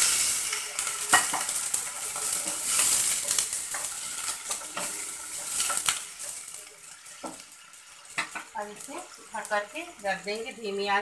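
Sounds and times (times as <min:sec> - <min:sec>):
water sizzling in hot oil: 0:00.0 - 0:11.0
wooden spatula scraping a pan: 0:01.1 - 0:06.5.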